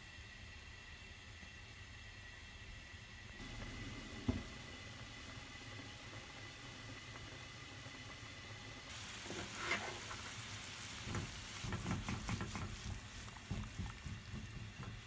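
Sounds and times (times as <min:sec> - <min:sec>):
meat hissing and bubbling in water: 0:08.8 - 0:15.0.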